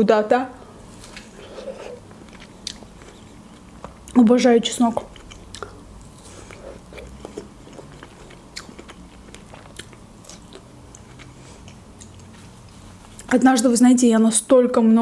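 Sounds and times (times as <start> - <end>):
wet chewing clicks and smacks: 2.2 - 4.2, 5.0 - 12.3.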